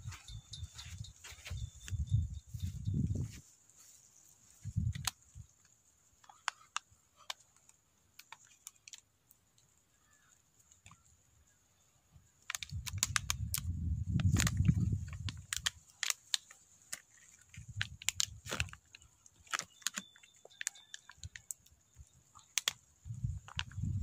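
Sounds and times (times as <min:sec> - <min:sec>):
plastic bottle crackling: 0:12.5 - 0:21.7.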